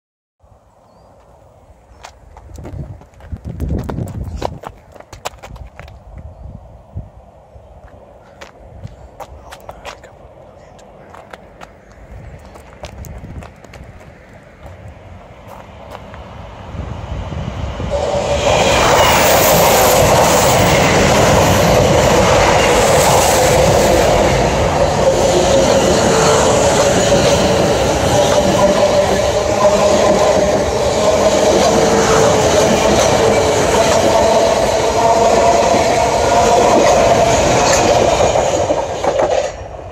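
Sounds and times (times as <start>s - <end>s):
train steady hum: 0.4s - 39.9s
train wheels rumbling on rails: 2.4s - 6.3s, 7.8s - 39.9s.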